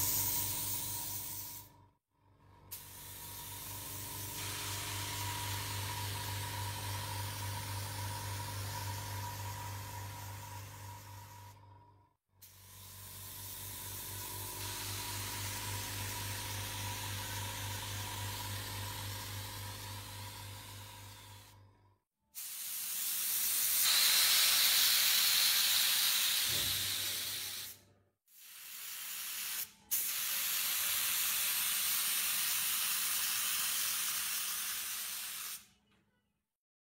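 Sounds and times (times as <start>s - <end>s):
spray gun hissing: 0.0s - 1.7s, 22.4s - 27.8s, 28.4s - 35.7s.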